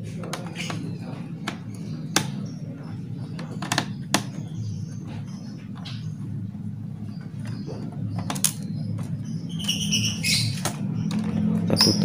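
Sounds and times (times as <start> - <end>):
steady low hum: 0.0 - 12.0
clicks and taps on plastic casing: 0.1 - 2.6, 3.3 - 4.4.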